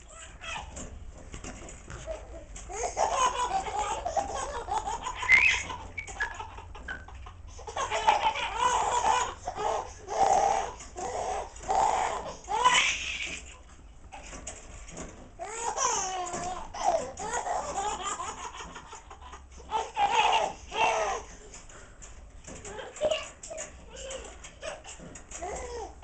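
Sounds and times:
young child laughing: 0:22.7 - 0:25.9.

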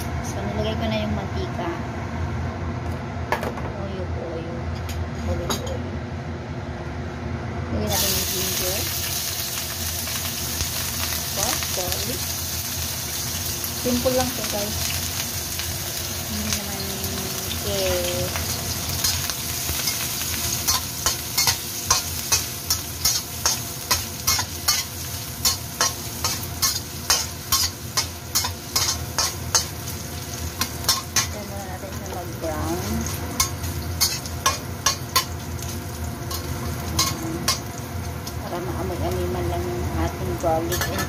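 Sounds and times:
garlic sizzling in hot oil: 0:07.8 - 0:41.0
metal spatula scraping wok: 0:19.0 - 0:31.4.

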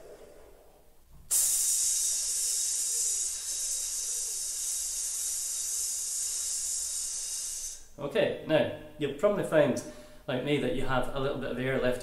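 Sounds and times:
man hissing out breath: 0:01.3 - 0:08.0
quiet in-breath: 0:09.8 - 0:10.3.

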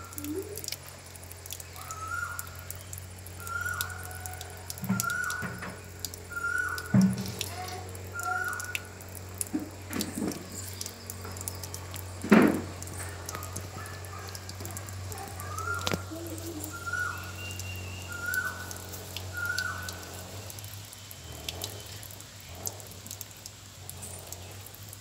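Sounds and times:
bird calling: 0:00.0 - 0:00.8, 0:01.6 - 0:09.2, 0:12.9 - 0:20.7
steady low hum: 0:00.0 - 0:25.0
soapy hands rubbing together: 0:12.8 - 0:20.3.

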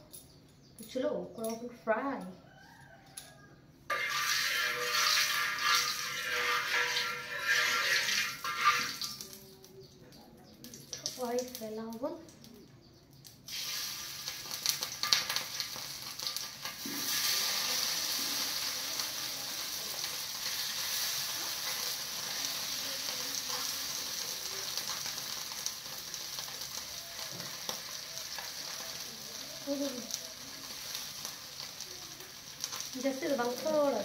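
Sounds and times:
fish sizzling in hot oil: 0:03.9 - 0:09.6, 0:10.6 - 0:12.0, 0:13.3 - 0:34.0.

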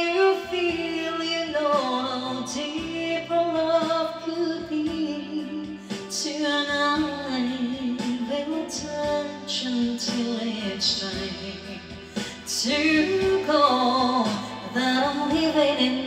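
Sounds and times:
instrumental backing track: 0:00.0 - 0:16.0
woman singing pop ballad: 0:00.0 - 0:16.0.

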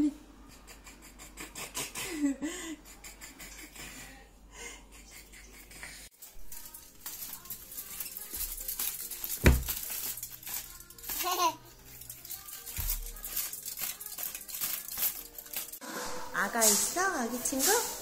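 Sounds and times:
aluminium foil crinkling: 0:06.1 - 0:15.8.

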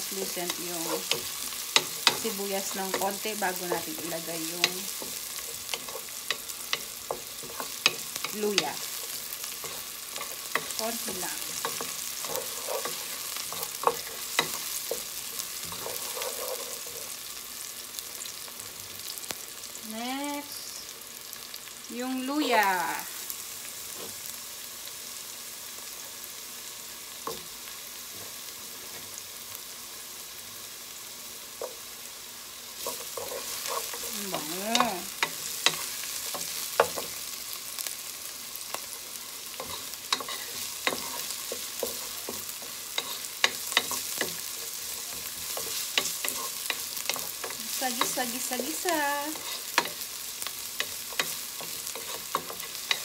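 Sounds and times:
wooden spoon stirring in a pot: 0:00.0 - 0:17.3, 0:32.7 - 0:37.5, 0:38.6 - 0:53.0
garlic and onion sizzling in oil: 0:00.0 - 0:53.0.

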